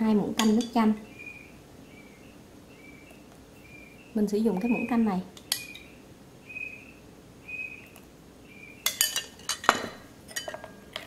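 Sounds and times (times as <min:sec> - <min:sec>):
spoon clinking against glass bowl: 0:08.8 - 0:11.0.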